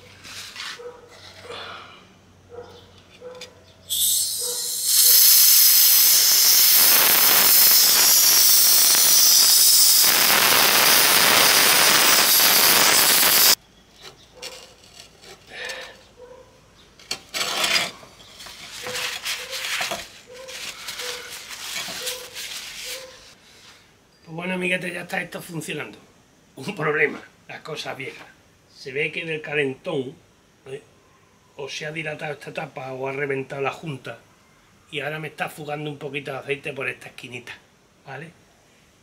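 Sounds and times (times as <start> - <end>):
compressed air hissing: 3.9 - 13.6.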